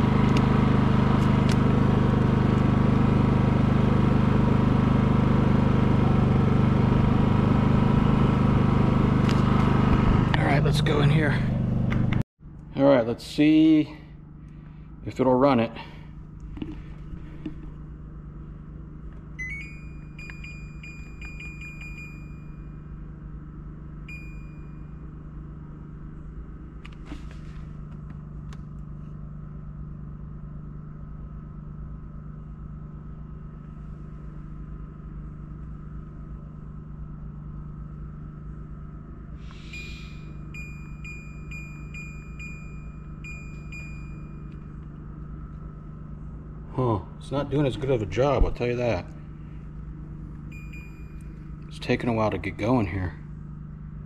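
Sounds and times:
low hum: 0.0s - 54.0s
air conditioner beeps: 19.3s - 25.5s, 39.5s - 46.2s, 47.6s - 53.0s.

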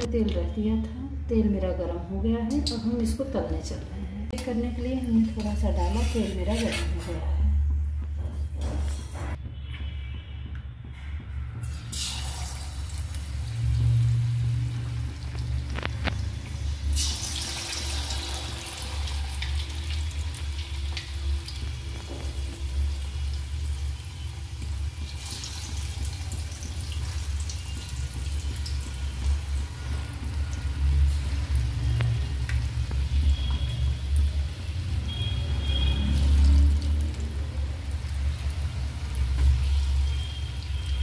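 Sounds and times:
metal spoon stirring in pan: 5.2s - 7.4s
potato slices deep-frying in oil: 11.6s - 41.0s.

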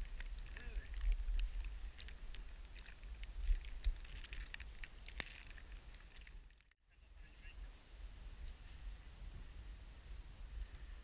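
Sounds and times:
wind buffeting microphone: 0.0s - 6.4s
small clicks and crackles: 0.0s - 6.8s.

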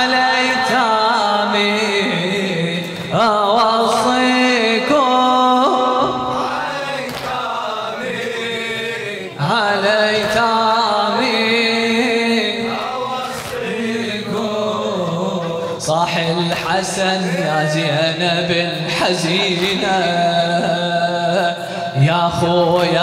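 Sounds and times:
man chanting through microphone: 0.0s - 23.0s.

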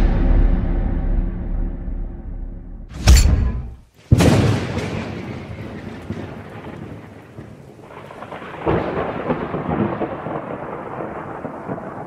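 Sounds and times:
loud thunderclap: 4.1s - 12.0s
thunder rumbling: 4.2s - 12.0s
rain falling: 4.9s - 12.0s.

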